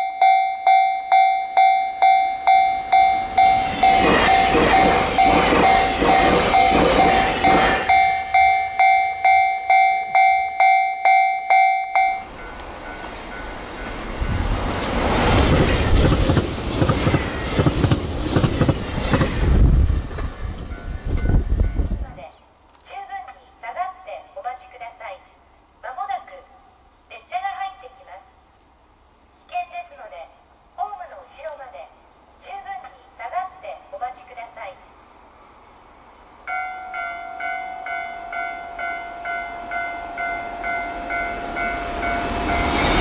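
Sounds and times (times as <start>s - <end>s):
level crossing bell ringing: 0.0s - 13.5s, 36.5s - 42.8s
train passing with rail clatter: 0.0s - 22.3s, 32.1s - 43.0s
wheels clattering over rail joints: 2.9s - 9.2s.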